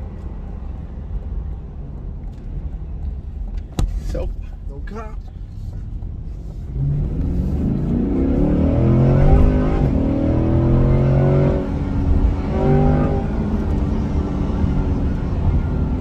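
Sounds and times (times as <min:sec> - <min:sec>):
car engine accelerating: 0:05.6 - 0:16.0.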